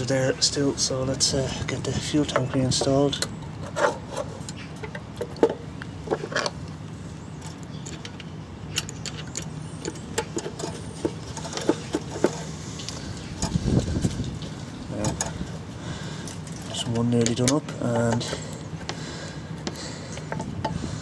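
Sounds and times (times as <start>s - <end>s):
steady low hum: 0.0s - 21.0s
fuel tank and screws clicking: 7.4s - 15.4s, 19.6s - 20.9s.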